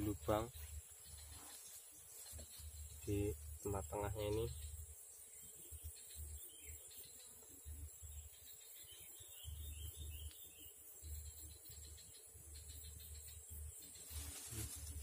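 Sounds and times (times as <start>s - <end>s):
insects chirring: 0.0s - 15.0s.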